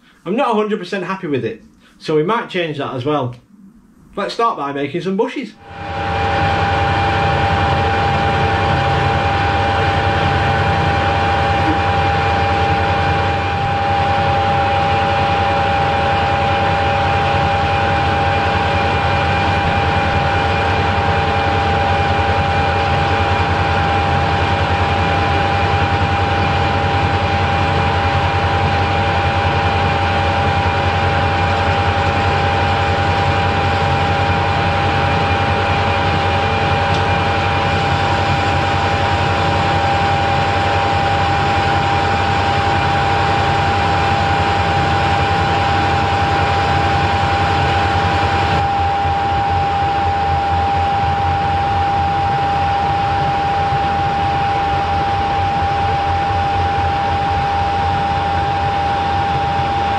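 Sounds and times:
lathe running with gear whine: 0:05.6 - 0:59.9.

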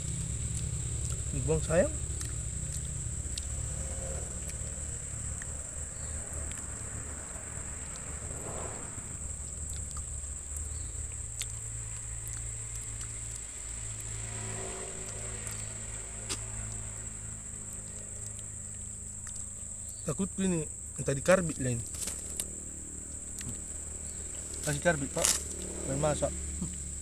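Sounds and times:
high-pitched insect drone: 0:00.0 - 0:27.0
low background hum: 0:00.0 - 0:27.0.

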